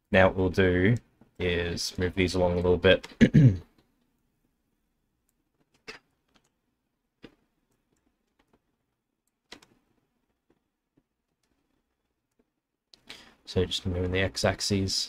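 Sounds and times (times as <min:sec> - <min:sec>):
keyboard and mouse clicks: 0:05.3 - 0:06.6, 0:07.2 - 0:13.1.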